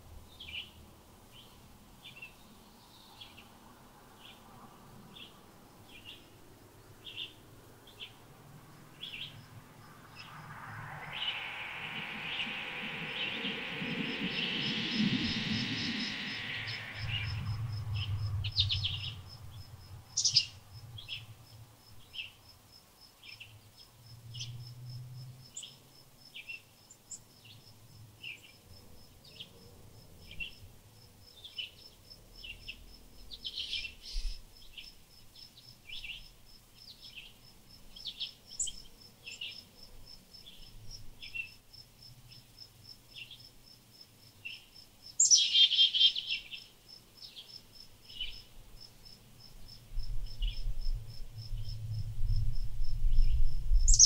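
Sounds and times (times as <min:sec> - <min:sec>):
small songbirds chirping: 0:00.2 - 0:22.5, 0:23.1 - 0:24.7, 0:25.4 - 0:28.6, 0:30.2 - 0:54.0
insect trilling: 0:09.1 - 0:19.3.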